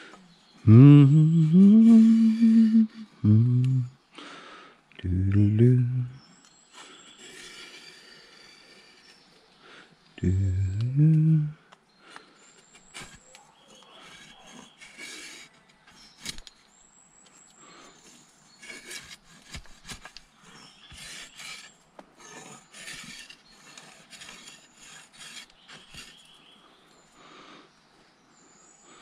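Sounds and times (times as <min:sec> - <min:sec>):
rasping on saw blade: 0:06.8 - 0:09.2, 0:12.7 - 0:16.5, 0:17.9 - 0:26.4.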